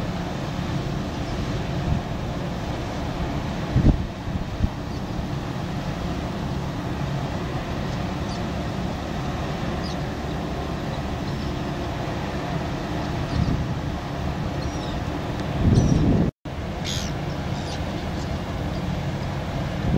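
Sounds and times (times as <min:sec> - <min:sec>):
churning water: 0:00.0 - 0:19.9
diesel engines droning: 0:16.5 - 0:19.9.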